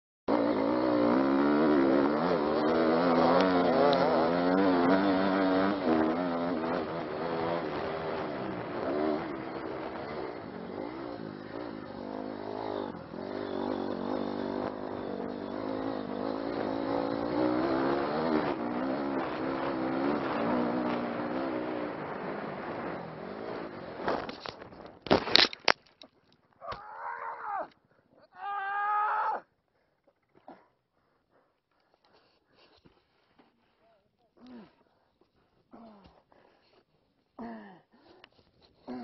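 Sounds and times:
dirt bike engine revving: 0.3s - 24.3s.

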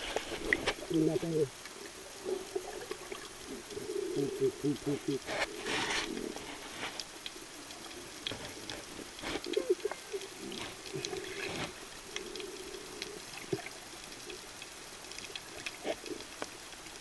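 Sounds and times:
water moving underwater: 0.0s - 17.0s
sharp underwater clicks and pops: 5.2s - 17.0s.

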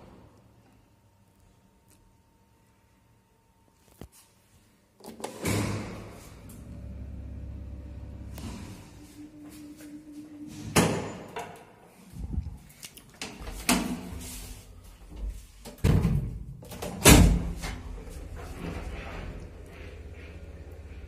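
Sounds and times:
low steady hum: 5.7s - 21.0s.

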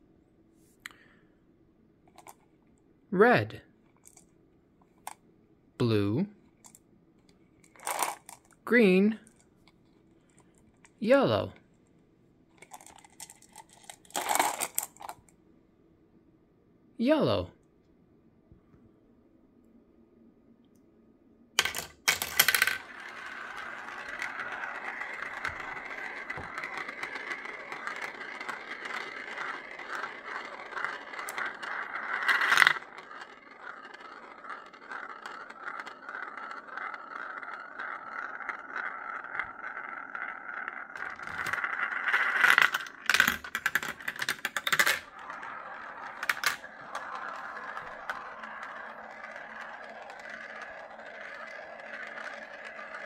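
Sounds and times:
marbles clattering clicks: 2.1s - 2.4s, 7.6s - 9.5s, 12.6s - 15.3s, 21.6s - 53.0s
marbles rolling on plastic tracks: 2.1s - 2.5s, 3.9s - 4.3s, 6.5s - 11.7s, 12.5s - 15.4s, 21.6s - 53.0s.

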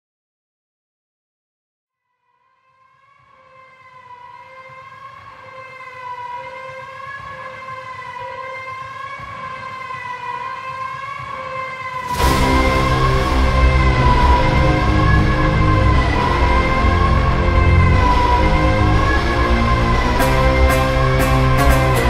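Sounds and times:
siren wailing: 2.2s - 22.0s
loud bass-heavy music: 12.0s - 22.0s.

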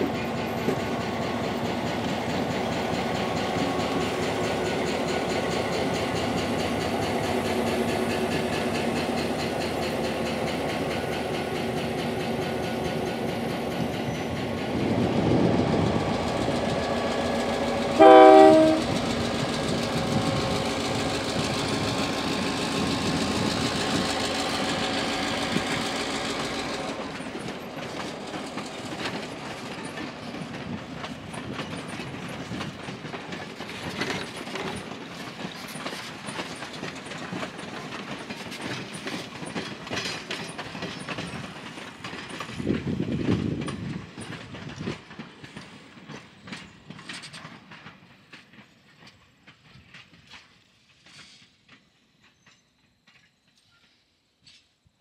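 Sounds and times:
wheels clattering over rail joints: 0.0s - 54.7s
diesel locomotive engine: 0.0s - 55.0s
train horn blast: 18.0s - 19.0s.

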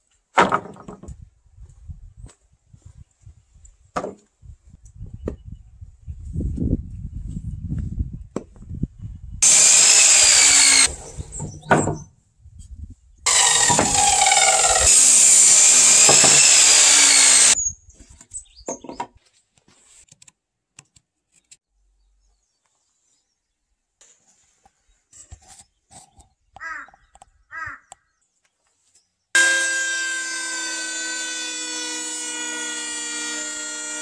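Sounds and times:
miter saw cutting wood: 9.4s - 11.6s, 13.3s - 17.6s, 29.4s - 34.0s.

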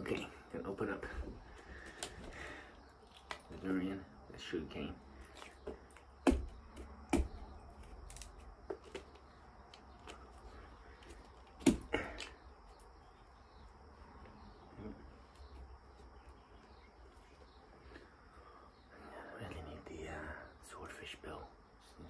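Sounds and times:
knife knocking into fruit husk: 6.2s - 7.4s.

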